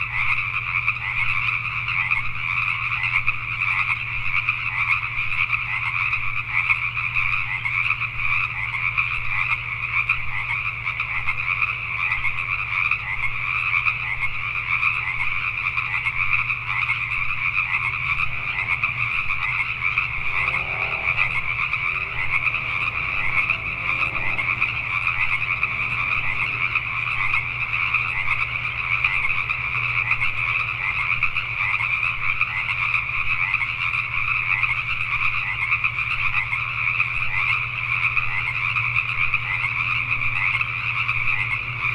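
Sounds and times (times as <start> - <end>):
chorus of tree frogs: 0.0 - 41.9
low steady hum: 0.0 - 41.9.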